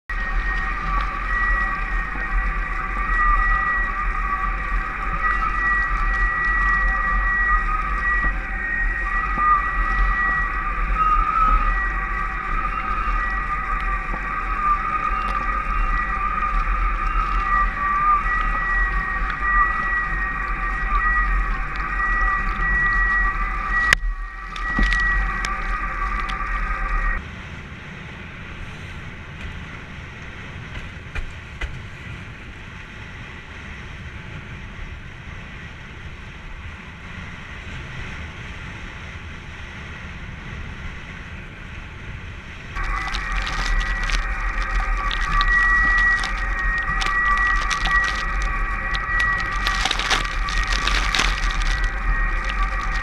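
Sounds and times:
hydrofoil high whistling: 0.0 - 27.2, 42.6 - 53.0
rushing water: 0.1 - 27.2, 42.8 - 53.0.

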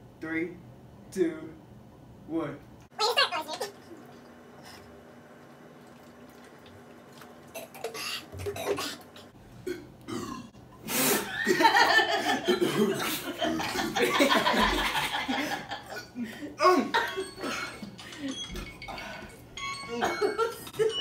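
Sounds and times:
loud burping: 9.6 - 10.6
people laughing: 11.3 - 17.5, 19.9 - 21.0.

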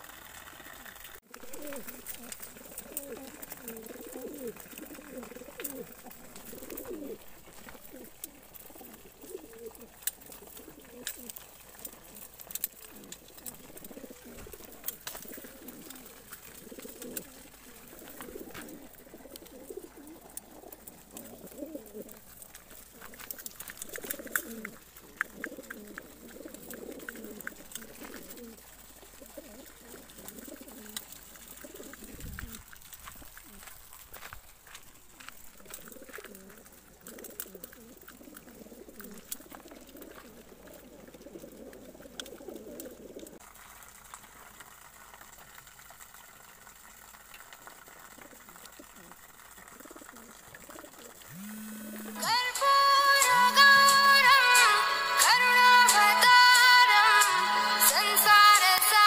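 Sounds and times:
pigeons cooing: 0.0 - 34.3, 35.4 - 43.4, 48.0 - 59.0
quick run of clicks: 51.2 - 57.3.

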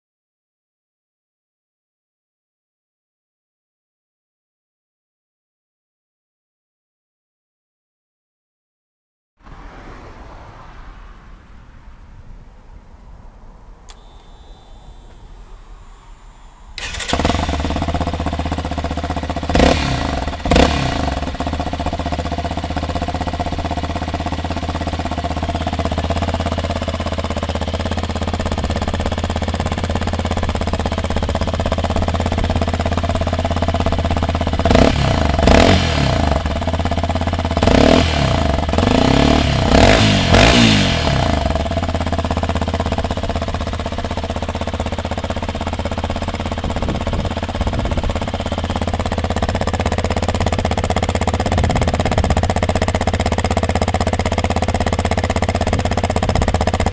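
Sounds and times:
engine throttle blips and revs: 13.8 - 56.9
motorcycle engine starting and idling: 13.8 - 56.9.

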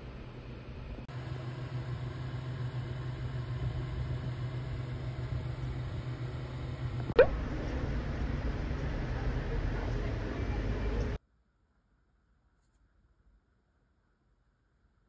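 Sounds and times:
low mechanical hum: 0.0 - 11.2.

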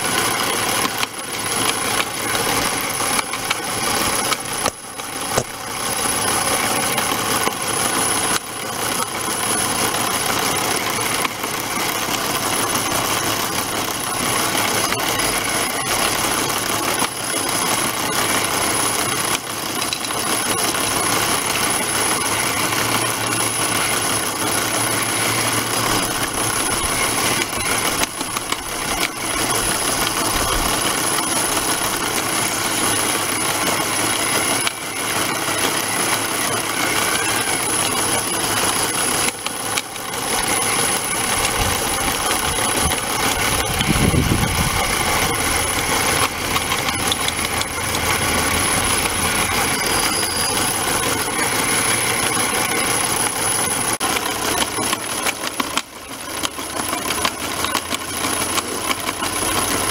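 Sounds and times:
model loader motors: 0.0 - 59.9
small electric motor running: 0.0 - 59.9
thin high whine: 10.2 - 53.9.

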